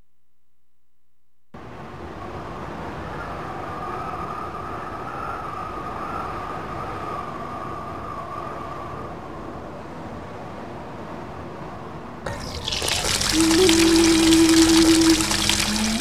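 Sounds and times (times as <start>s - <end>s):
sustained wavering high tone: 12.3s - 16.0s.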